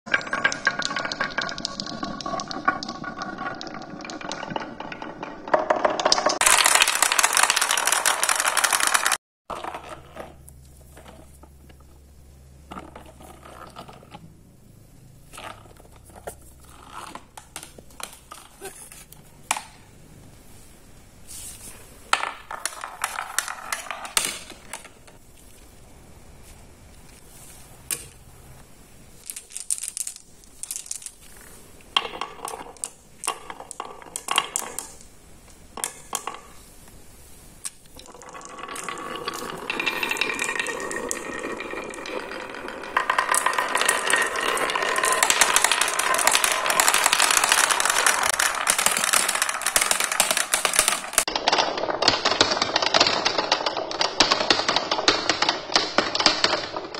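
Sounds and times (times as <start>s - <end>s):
marbles clicking on wooden pegs: 0.1s - 9.9s, 22.1s - 25.2s, 29.2s - 36.6s, 37.6s - 56.9s
marbles piling into plastic tray: 0.1s - 10.0s, 22.1s - 25.0s, 29.2s - 35.1s, 35.7s - 36.7s, 37.7s - 56.9s.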